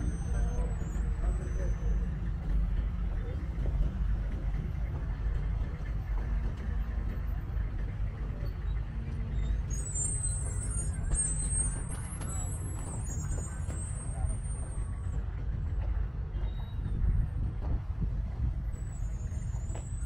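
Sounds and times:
traffic rumble: 0.0 - 20.0
high squeal: 9.3 - 15.1.

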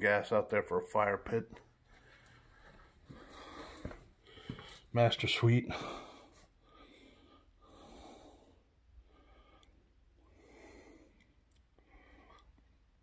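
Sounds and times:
slow soft breathing: 1.8 - 4.9, 5.7 - 13.0.

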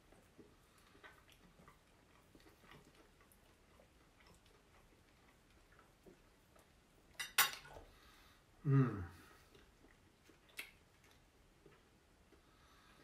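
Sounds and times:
mouth clicks of chewing: 0.0 - 6.8, 9.5 - 12.5.

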